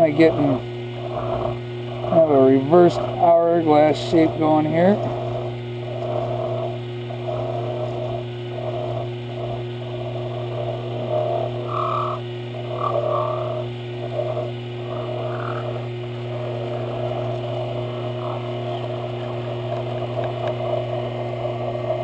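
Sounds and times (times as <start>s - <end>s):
file rasping on metal: 0.0s - 19.0s
lathe motor hum: 0.0s - 22.0s.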